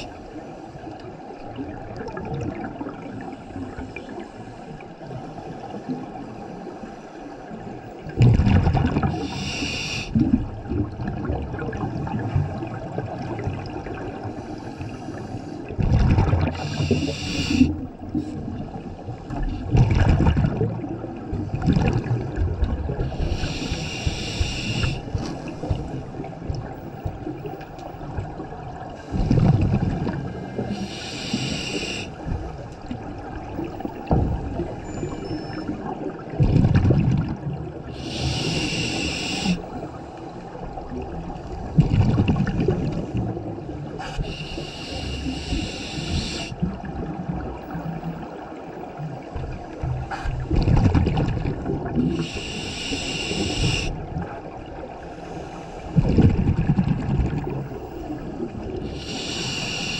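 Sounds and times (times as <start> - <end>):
gurgling exhaled bubbles: 1.4 - 4.1, 8.0 - 14.5, 15.6 - 55.2, 55.8 - 59.9
scuba regulator breaths hissing: 9.2 - 10.2, 16.5 - 18.4, 23.0 - 26.1, 30.6 - 32.5, 37.9 - 40.3, 44.0 - 46.7, 52.1 - 54.0, 55.1 - 56.0, 58.8 - 59.9.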